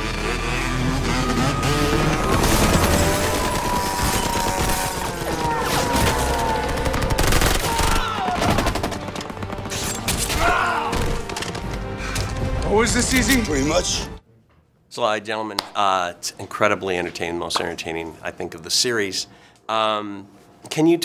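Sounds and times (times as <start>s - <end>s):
film music: 0.0s - 14.2s.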